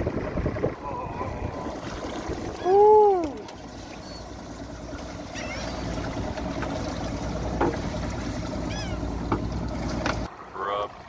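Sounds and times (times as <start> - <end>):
aerator pump humming: 0.0 - 11.0
fish flapping against hull: 1.6 - 10.3
net weights tapping hull: 4.6 - 10.3.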